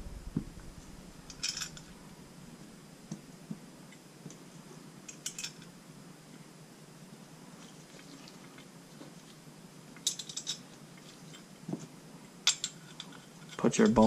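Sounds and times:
small metal hardware clinking: 1.3s - 1.9s, 10.0s - 10.6s, 12.5s - 13.6s.

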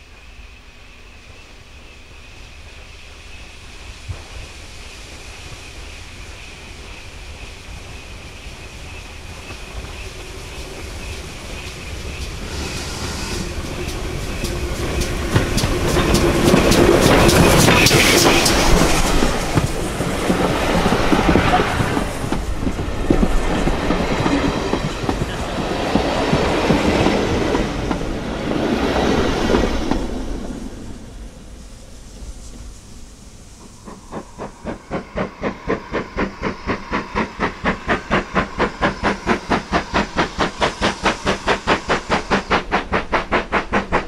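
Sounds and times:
steam train passing: 0.0s - 44.0s
wheels clicking over rail joints: 13.5s - 28.2s.

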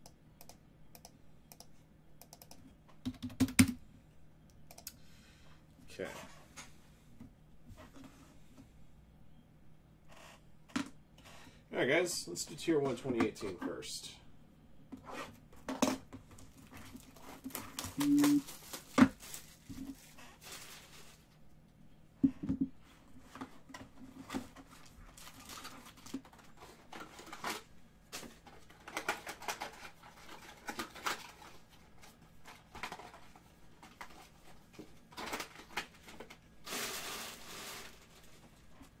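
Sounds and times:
packaging crinkling and rustling: 16.4s - 21.4s, 24.5s - 38.7s.

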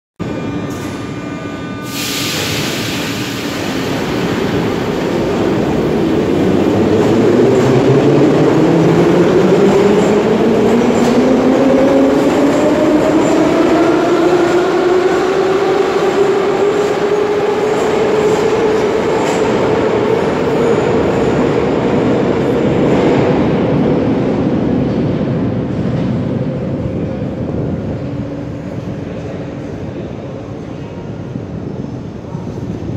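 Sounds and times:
air hiss: 1.8s - 5.3s.

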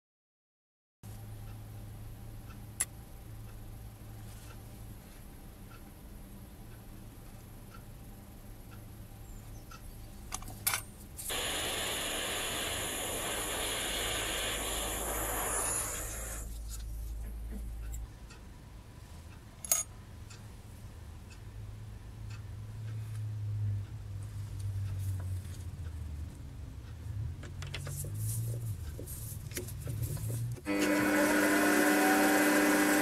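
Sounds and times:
gas torch click: 11.3s - 16.5s
gas torch flame hissing: 11.3s - 16.5s.

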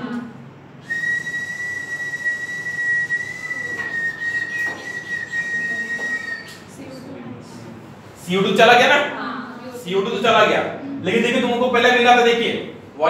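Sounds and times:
high whistle-like tone: 0.8s - 6.6s.

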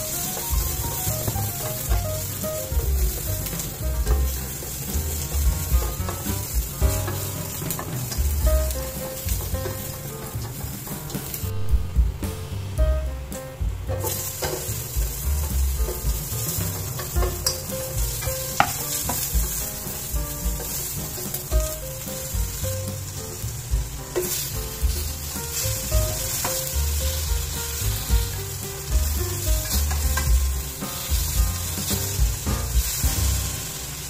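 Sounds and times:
vegetables sizzling in a pot: 0.0s - 12.8s, 13.6s - 34.0s
spatula scraping and knocking pot: 14.0s - 20.0s.

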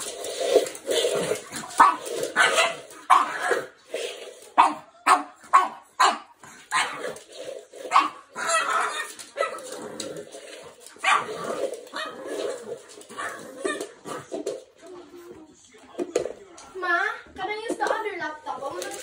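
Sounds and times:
dog barking: 1.8s - 3.7s, 4.6s - 7.0s, 7.9s - 9.6s, 11.0s - 11.3s.

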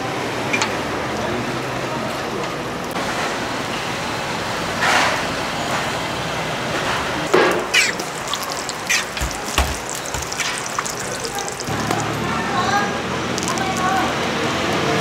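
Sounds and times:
oil sizzling on griddle: 7.3s - 12.4s.

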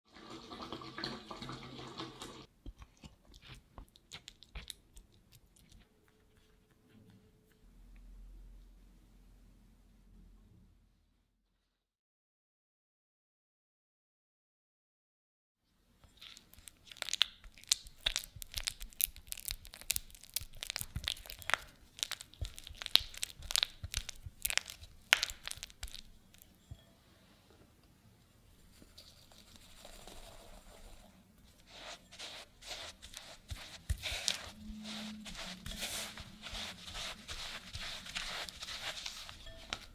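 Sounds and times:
sticky clicks and squishes: 2.7s - 6.2s, 16.2s - 26.5s
spatula stirring sticky nougat: 16.1s - 26.7s, 31.4s - 39.9s
spatula scraping butter in bowl: 31.6s - 39.9s.

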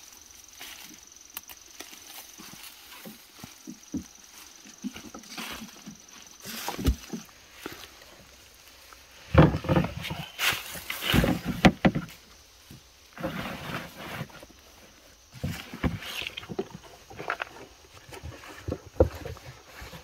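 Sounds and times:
fern shoots rustling and crunching: 0.0s - 20.0s
plastic basket knocks and scrapes: 9.3s - 12.2s.

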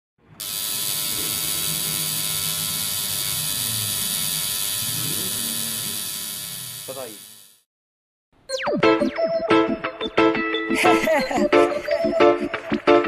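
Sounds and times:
tattoo machine buzzing: 0.4s - 7.7s.

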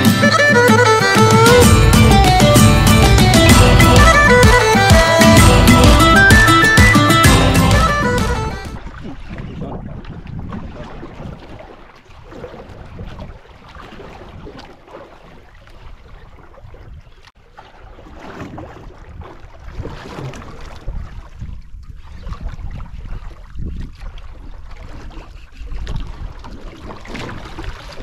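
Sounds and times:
wind buffeting microphone: 7.9s - 13.4s, 20.7s - 26.6s
water sloshing against hull: 7.9s - 28.0s.

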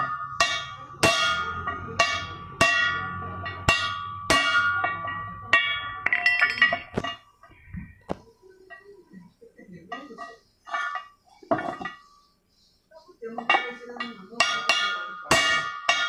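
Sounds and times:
hammer striking steel: 0.0s - 7.2s, 13.4s - 16.0s.

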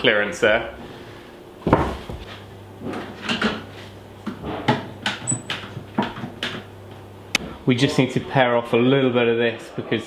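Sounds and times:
wooden beam knocks and bumps: 1.6s - 2.2s.

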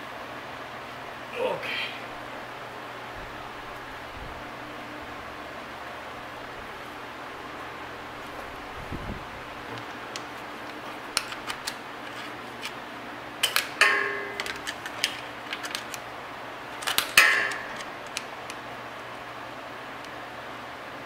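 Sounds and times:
metal tools clicking: 13.4s - 16.0s
ringing metal clanks: 13.8s - 14.5s, 17.2s - 17.8s.

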